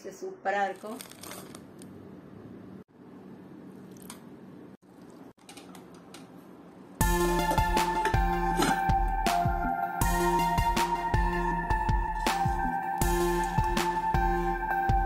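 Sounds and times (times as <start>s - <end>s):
instrumental background music: 7.0s - 15.0s
steel pot being handled: 7.4s - 8.9s.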